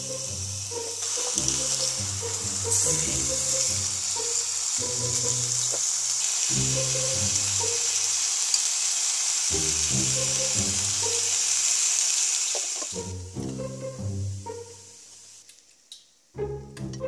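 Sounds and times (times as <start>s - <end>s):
background music: 0.0s - 8.3s, 9.5s - 11.5s, 13.0s - 15.1s, 16.3s - 17.0s
steak sizzling in a pan: 0.0s - 13.2s.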